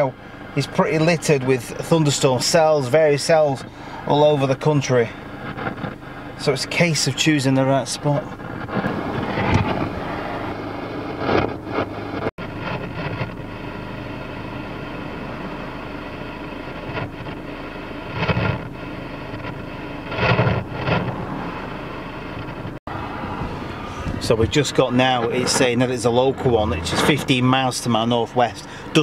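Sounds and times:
steady background hum: 0.0s - 29.0s
cars driving past: 20.1s - 29.0s.

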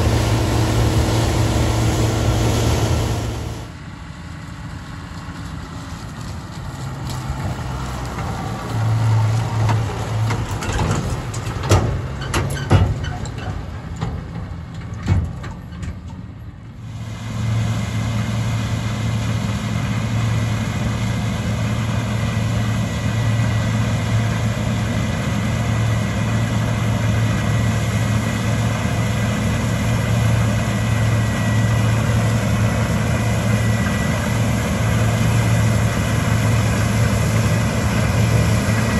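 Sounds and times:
threshing machinery hum: 0.0s - 4.1s, 16.9s - 38.9s
combine harvester engine drone: 0.0s - 38.9s
tractor engine approaching: 0.0s - 38.9s
knocks and rattles: 9.6s - 16.2s.

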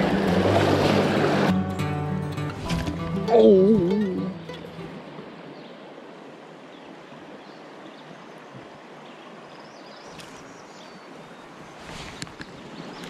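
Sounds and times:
river flowing over gravel: 0.0s - 13.0s.

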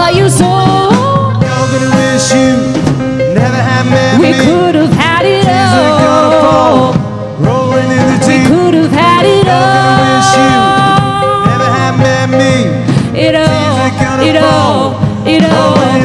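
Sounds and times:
woman singing: 0.0s - 1.5s, 4.1s - 7.0s, 8.3s - 12.0s, 13.1s - 16.0s
country rock band playing: 0.0s - 16.0s.

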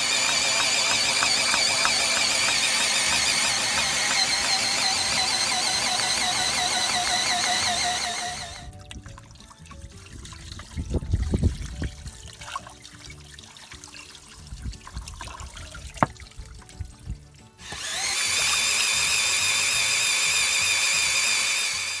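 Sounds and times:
cordless screwdriver whining: 0.0s - 8.7s, 17.6s - 22.0s
water trickling and splashing: 8.7s - 17.6s.

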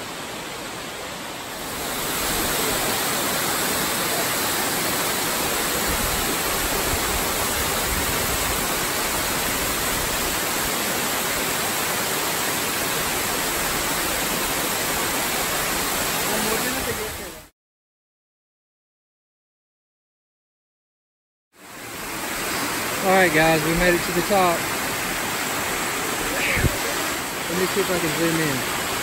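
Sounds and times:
waterfall rushing: 0.0s - 17.5s, 21.6s - 29.0s.

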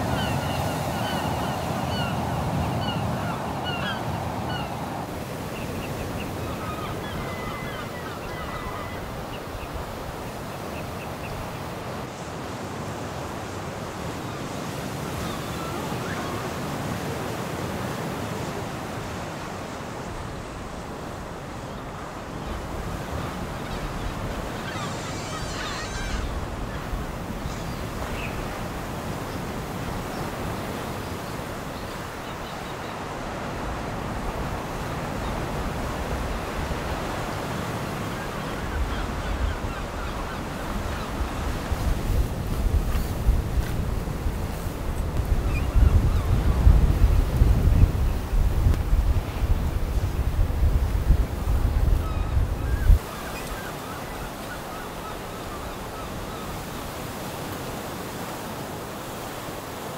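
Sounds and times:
sea surf washing onto shore: 0.0s - 59.9s
wind gusting on microphone: 33.0s - 54.3s.

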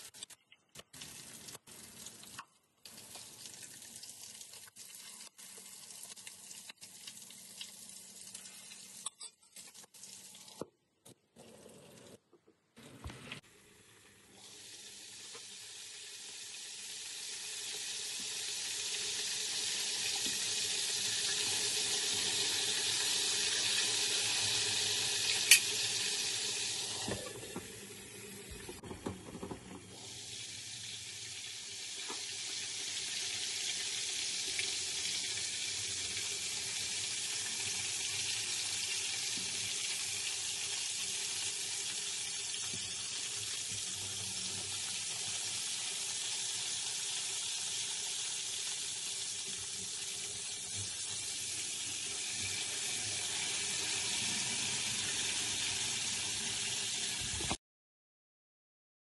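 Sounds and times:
fish frying in hot oil: 14.2s - 26.9s, 28.8s - 57.6s.

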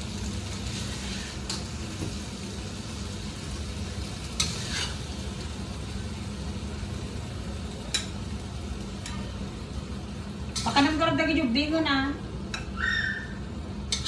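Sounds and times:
steady sizzle: 0.0s - 14.0s
metal spatula stirring in a wok: 0.6s - 1.7s, 4.4s - 5.2s.

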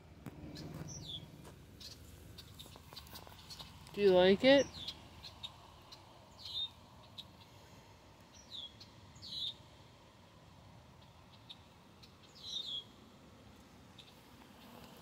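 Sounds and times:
bird chirping: 0.4s - 7.7s, 8.3s - 9.6s, 11.0s - 13.0s, 13.9s - 14.9s.

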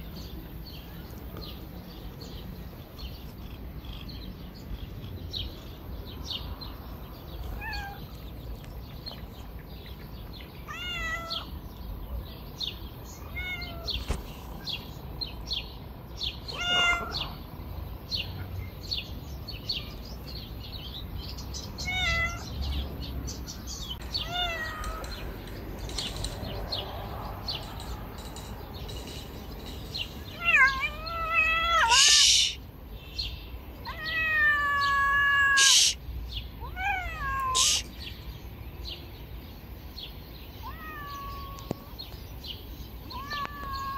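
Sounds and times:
cats meowing: 7.2s - 8.3s, 10.6s - 11.6s, 13.1s - 14.2s, 16.4s - 17.5s, 21.8s - 22.6s, 24.0s - 25.4s, 30.2s - 32.6s, 33.8s - 36.0s, 36.6s - 38.0s, 40.6s - 42.2s, 43.0s - 43.9s.

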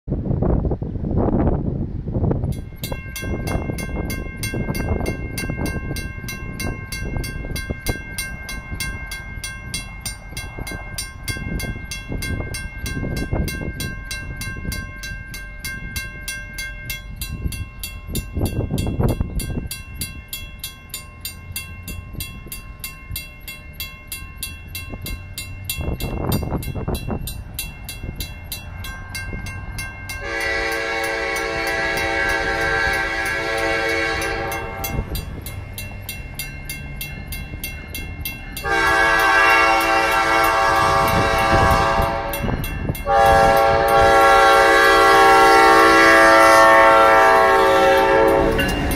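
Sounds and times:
mechanical crossing bell ringing: 2.5s - 44.1s, 47.6s - 48.9s
diesel locomotive horn blasts: 30.2s - 35.2s, 38.6s - 48.9s.

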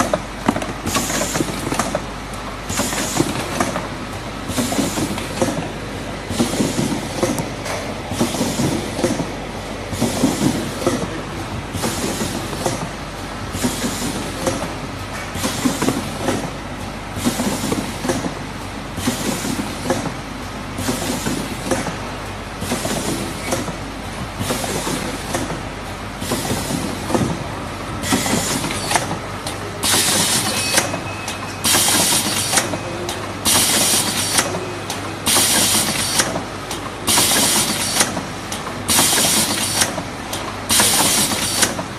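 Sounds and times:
machine mechanical clatter: 0.0s - 20.2s, 20.8s - 25.6s, 26.2s - 41.9s.

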